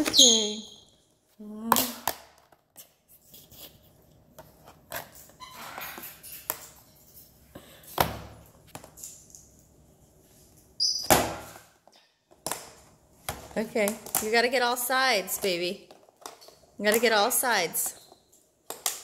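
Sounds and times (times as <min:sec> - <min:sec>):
plastic lid clicks and crackles: 0:12.3 - 0:12.8, 0:13.8 - 0:14.4, 0:18.6 - 0:19.0.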